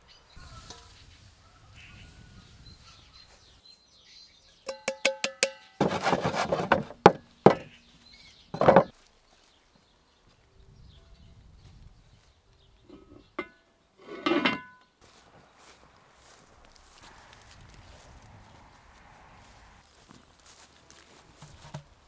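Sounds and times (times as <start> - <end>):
taps on metal bowl: 4.7 - 5.8
cookware knocking and clattering: 4.7 - 7.7, 8.6 - 8.9, 12.9 - 14.8.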